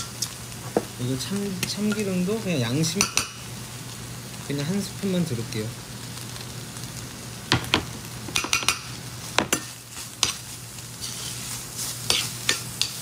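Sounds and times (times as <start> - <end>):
frying hiss: 0.0 - 13.0
utensil clinking and scraping pan: 12.1 - 13.0.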